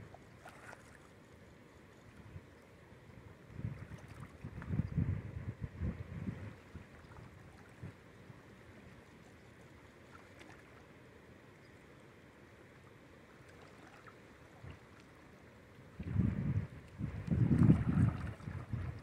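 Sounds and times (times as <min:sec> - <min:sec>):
wind buffeting microphone: 0:03.5 - 0:07.0, 0:16.0 - 0:19.0.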